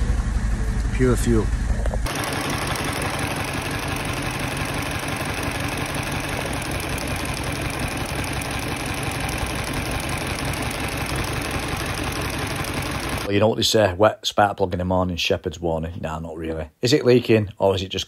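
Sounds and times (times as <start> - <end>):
car engine idling roughly: 0.0 - 13.3.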